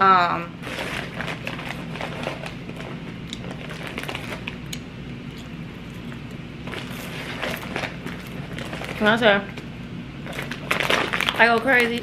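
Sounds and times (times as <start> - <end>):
steady low hum: 0.0 - 12.0
popcorn crunching as chewed: 0.6 - 9.6, 10.2 - 12.0.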